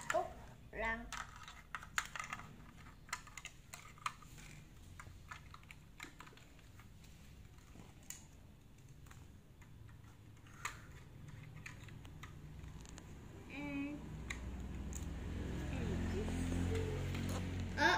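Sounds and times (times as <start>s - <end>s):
plastic bricks clicking: 1.0s - 6.9s.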